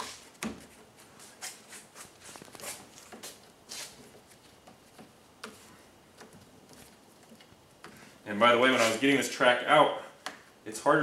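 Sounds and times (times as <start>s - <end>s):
rubber rubbing and scraping: 0.0s - 5.8s, 8.6s - 9.1s.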